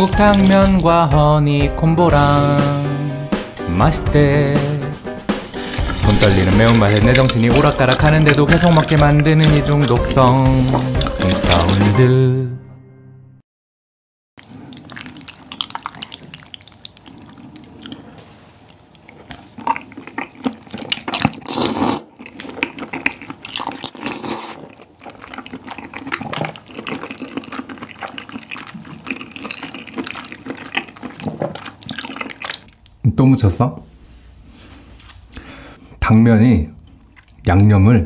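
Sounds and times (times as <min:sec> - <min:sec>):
person slurping and chewing: 0:00.0 - 0:01.4, 0:04.9 - 0:12.1, 0:14.4 - 0:32.8, 0:36.8 - 0:37.4.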